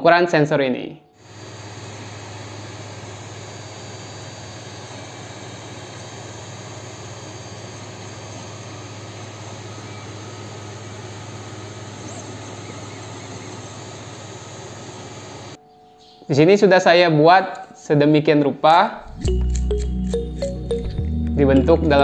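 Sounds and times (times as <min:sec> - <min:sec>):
cooling fans whirring: 0:01.2 - 0:15.6.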